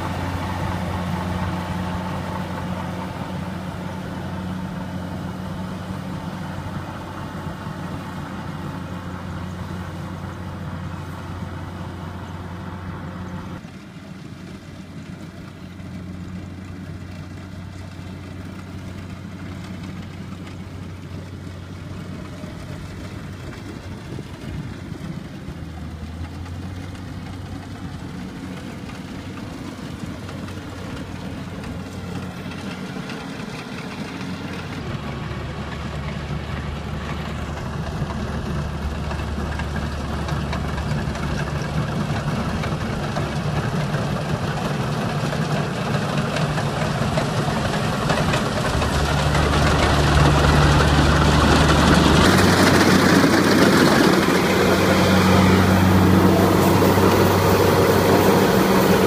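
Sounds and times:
combine harvester engine running: 0.0 - 59.0.

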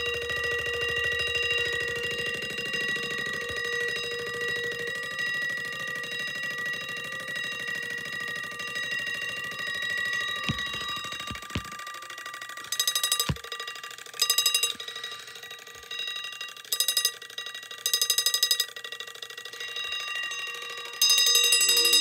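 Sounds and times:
alarm clock bell ringing: 0.0 - 22.0
knocks: 10.5 - 11.8.

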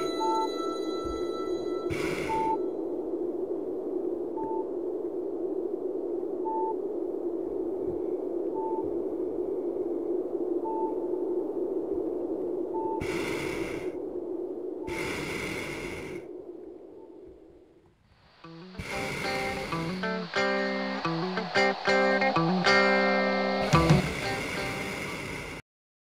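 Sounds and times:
steady hum: 0.0 - 25.6
hissing swells: 1.8 - 3.8, 14.8 - 17.0, 18.3 - 25.6.

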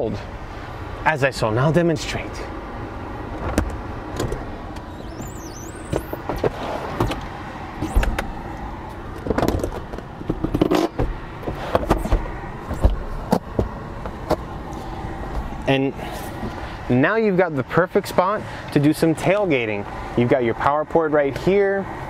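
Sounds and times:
seat latch clicks: 3.4 - 5.0, 5.9 - 11.1.

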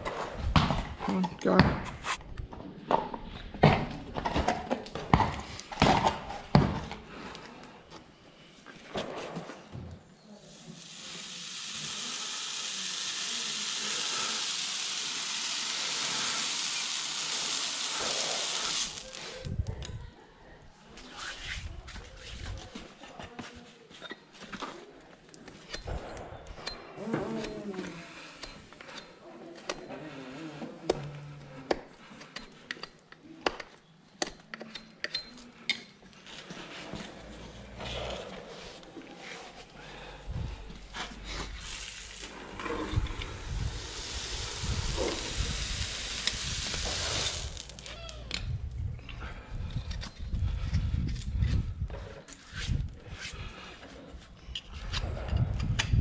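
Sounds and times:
hot horseshoe sizzling on hoof: 10.2 - 19.6, 41.4 - 48.4.

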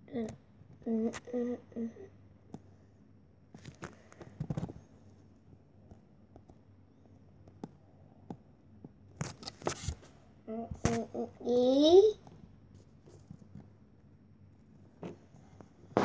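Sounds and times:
scratchy rustles on touchscreen: 9.2 - 10.2.

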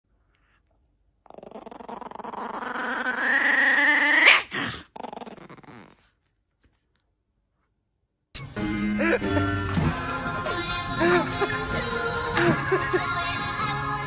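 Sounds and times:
puppy growling: 0.4 - 6.8.

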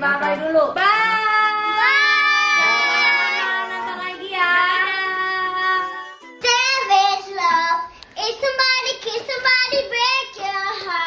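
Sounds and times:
young girl singing: 0.8 - 11.0
singing with long held notes: 1.4 - 6.8.

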